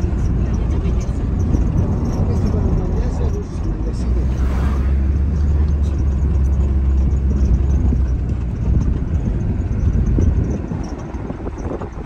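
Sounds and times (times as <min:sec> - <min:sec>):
loud low rumble: 0:03.9 - 0:07.9.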